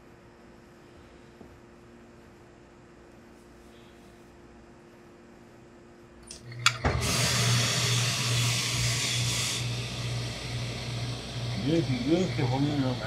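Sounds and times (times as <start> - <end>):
steady low hum: 0.0 - 13.0
steam iron hissing steam: 6.8 - 13.0.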